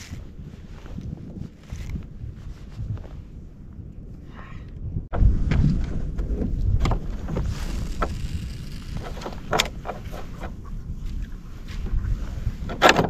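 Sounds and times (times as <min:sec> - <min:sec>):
wind rumbling on microphone: 0:00.0 - 0:13.0
water along kayak hull: 0:05.1 - 0:13.0
sharp clicks and knocks: 0:08.9 - 0:10.6.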